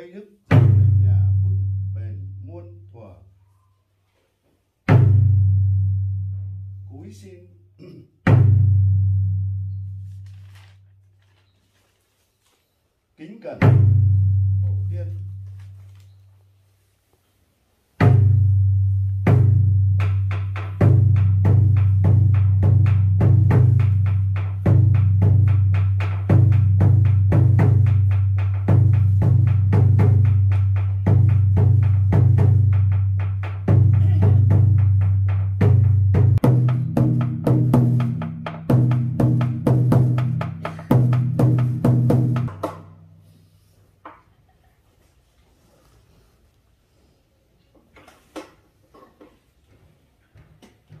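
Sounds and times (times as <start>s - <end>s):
drum strikes ringing: 19.3s - 43.0s.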